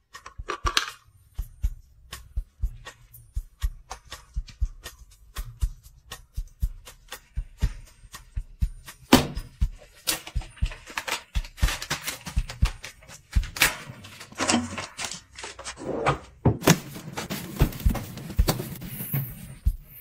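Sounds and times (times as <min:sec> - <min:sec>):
packaging taps and clicks: 0:09.8 - 0:15.5
packaging crinkling and rustling: 0:09.9 - 0:15.8.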